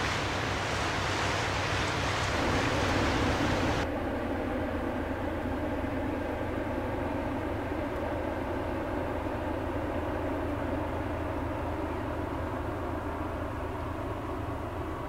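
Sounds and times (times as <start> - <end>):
wind and water rushing: 0.0 - 3.9
ship engine drone: 0.0 - 15.0.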